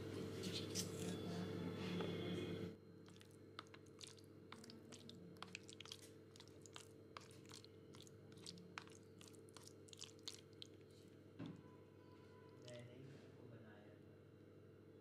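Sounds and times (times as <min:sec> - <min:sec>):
low steady hum: 0:00.0 - 0:13.3
plastic spoon stirring pasta: 0:03.1 - 0:11.6.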